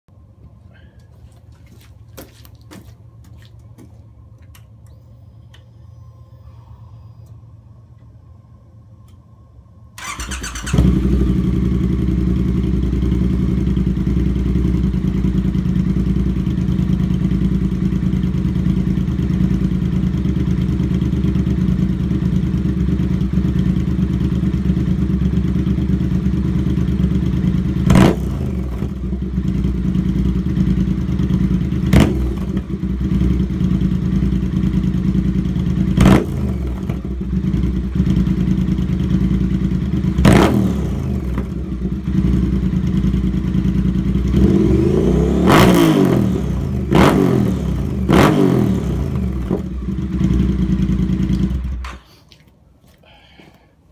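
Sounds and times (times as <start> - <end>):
motorcycle engine idling and revving: 10.0 - 52.1.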